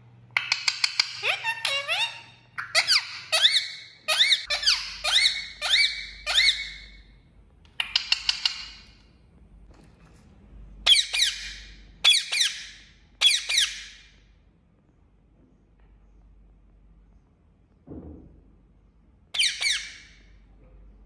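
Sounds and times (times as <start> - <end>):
parakeet screeching calls: 0.5 - 7.0, 10.8 - 14.0, 19.4 - 20.2.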